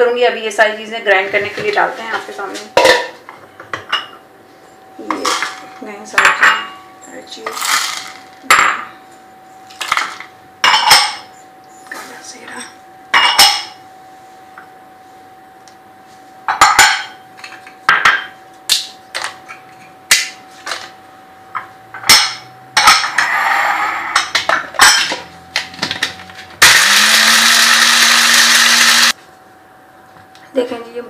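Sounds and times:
electric spice grinder whirring: 26.0 - 29.2.

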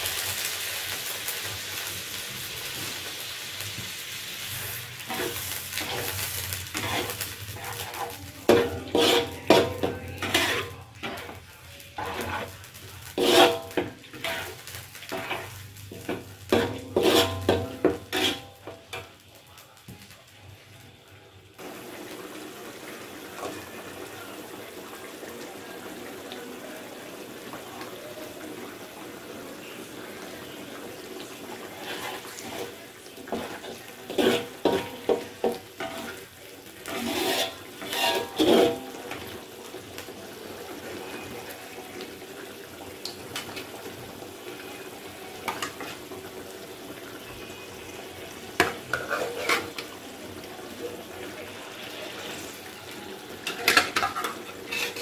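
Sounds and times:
sauce simmering with hiss: 0.0 - 55.0
metal spatula scraping a wok: 4.5 - 11.4, 12.0 - 18.7, 31.6 - 39.3, 48.6 - 50.0, 53.4 - 55.0.

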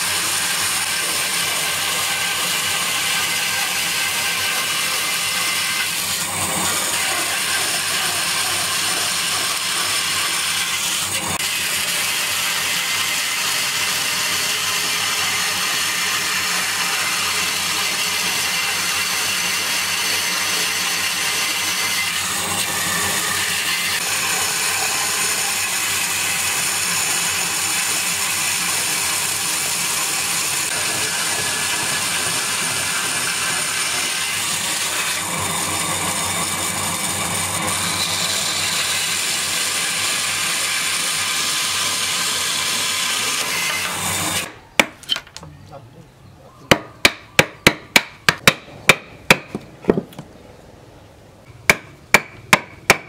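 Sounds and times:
bandsaw cutting wood: 0.0 - 44.6.

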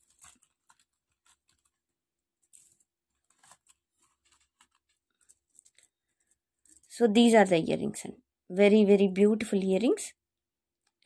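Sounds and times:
necklace clicking and rustling: 0.0 - 7.0.

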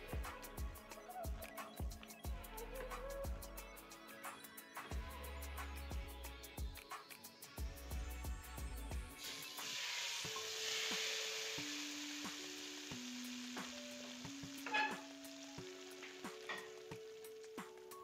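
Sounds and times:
hot butter sizzling: 9.1 - 18.0.

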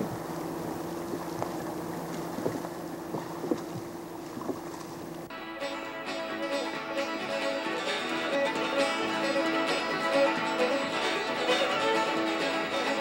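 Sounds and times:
plucked string music: 5.3 - 13.0.

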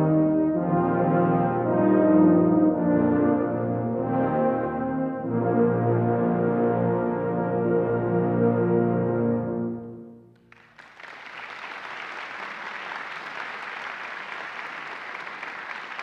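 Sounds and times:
brass choir chord: 0.0 - 10.3
audience applause: 10.4 - 16.0.

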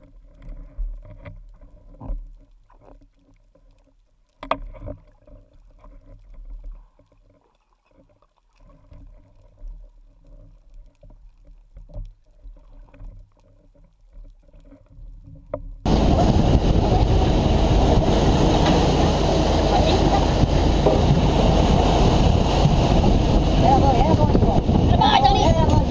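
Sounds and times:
wind and water noise on a boat: 14.8 - 25.9
faint underwater hum: 15.9 - 25.9.

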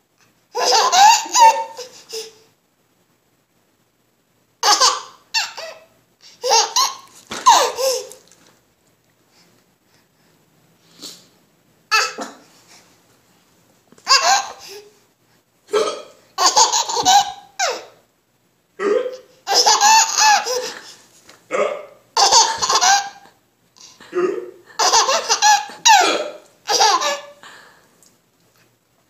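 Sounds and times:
baby laughing: 0.5 - 2.4, 4.6 - 8.4, 11.9 - 12.4, 14.0 - 14.9, 16.4 - 18.0, 18.8 - 21.0, 22.2 - 27.4
adult hiccuping: 11.9 - 12.5, 15.7 - 16.2, 18.8 - 19.4, 21.5 - 22.0, 23.8 - 24.7, 25.8 - 26.5.

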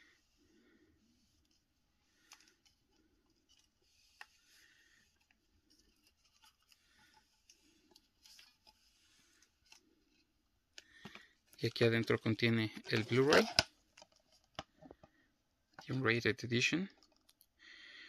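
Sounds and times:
box lid clicks and rustles: 12.8 - 14.8.

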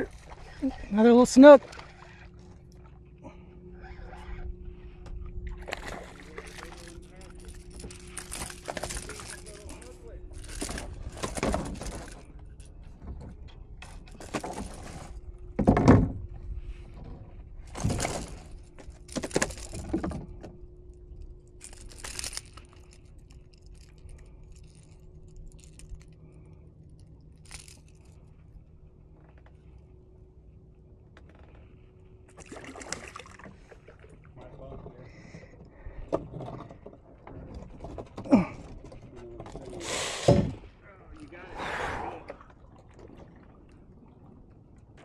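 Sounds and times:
faint steady hum: 0.0 - 45.0
handling rustles and knocks: 5.0 - 20.6.

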